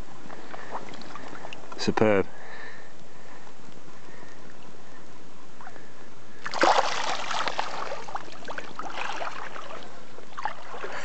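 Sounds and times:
trickling water: 0:00.2 - 0:02.6, 0:04.0 - 0:11.0
fish splashing at surface: 0:06.4 - 0:11.0.

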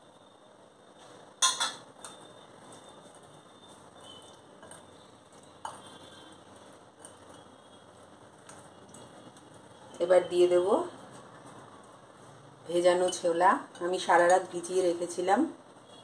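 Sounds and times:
steel bowl clinking on glass: 0:01.4 - 0:02.3.

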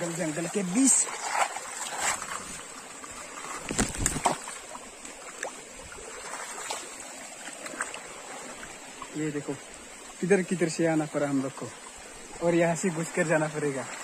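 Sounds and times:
feet splashing through stream: 0:00.0 - 0:10.3
stream water running: 0:00.0 - 0:14.0.

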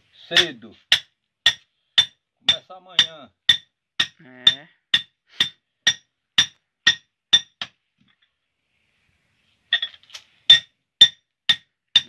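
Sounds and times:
hammer striking hot steel: 0:00.4 - 0:04.2, 0:05.0 - 0:07.7, 0:10.5 - 0:12.0.

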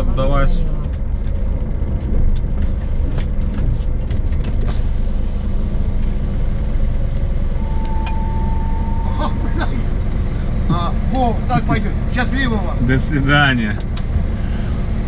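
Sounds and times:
diesel truck engine rumbling: 0:00.0 - 0:15.0
steady high tone: 0:07.5 - 0:12.0.

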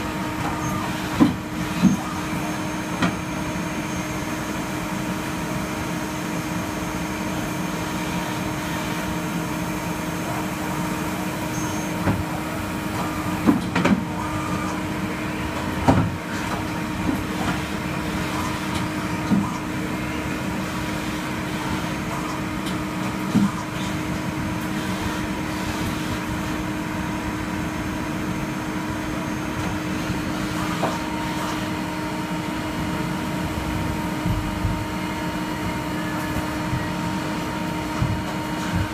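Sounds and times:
lathe humming and whining: 0:00.0 - 0:38.9
machine clunks and clicks: 0:13.0 - 0:14.1.

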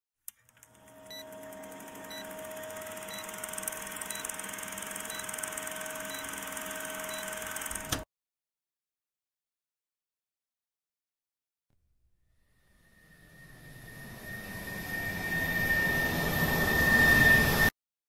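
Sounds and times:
film projector whir and hiss: 0:00.5 - 0:08.0
short high beeps: 0:03.0 - 0:04.4, 0:05.0 - 0:06.4, 0:07.0 - 0:07.5.

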